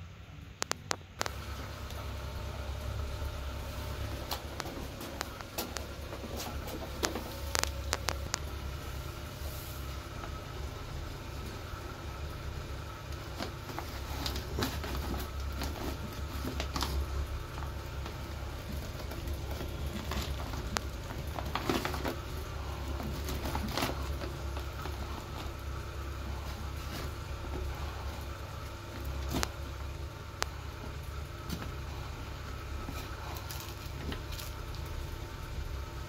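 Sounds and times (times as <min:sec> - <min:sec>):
steady low hum: 0:00.0 - 0:36.0
scoop scraping through cat litter: 0:09.0 - 0:10.4, 0:12.8 - 0:29.8.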